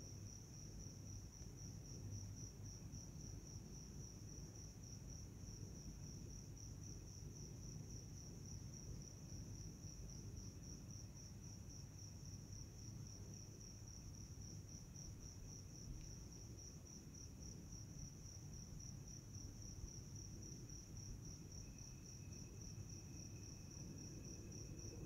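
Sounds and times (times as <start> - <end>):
crickets chirring: 7.9 - 25.0
low insect trill: 9.1 - 25.0.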